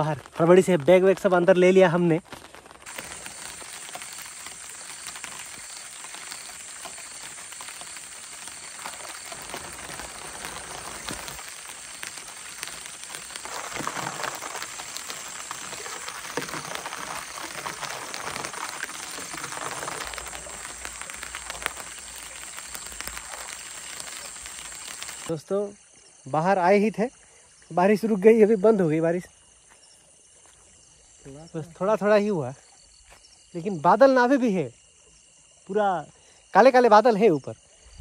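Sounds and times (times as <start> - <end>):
light rain falling: 0.0 - 25.4.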